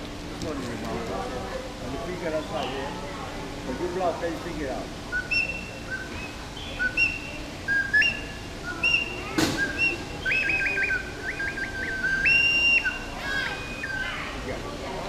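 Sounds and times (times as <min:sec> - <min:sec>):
hand whistle notes: 0:05.1 - 0:14.1
sharp knock: 0:09.4 - 0:09.7.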